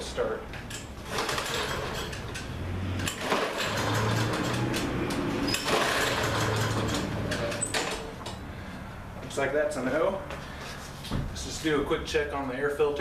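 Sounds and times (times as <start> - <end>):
recoil starter cord pulled: 0.7 - 8.4
small engine turning over: 1.0 - 8.1.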